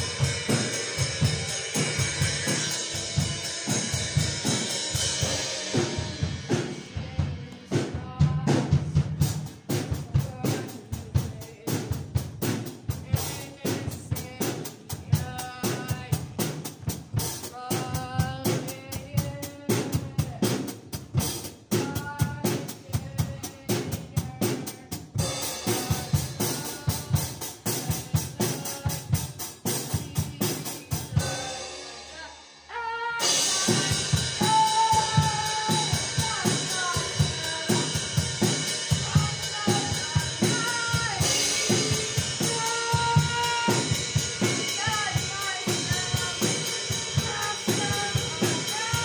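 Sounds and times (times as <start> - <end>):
melodic backing track: 0.0 - 11.2, 33.2 - 49.0
drum kit rock beat: 0.0 - 49.0.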